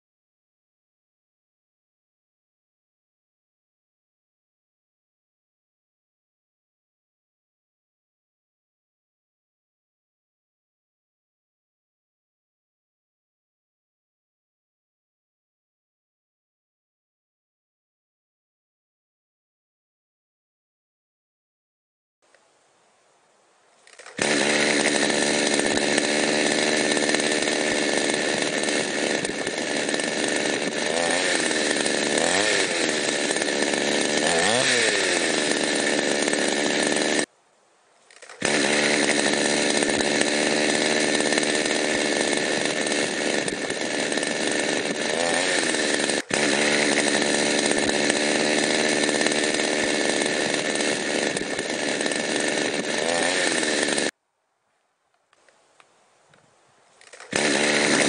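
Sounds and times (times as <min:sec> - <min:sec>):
chainsaw cutting wood: 0:23.8 - 0:37.3, 0:38.1 - 0:54.2, 0:55.4 - 0:58.0.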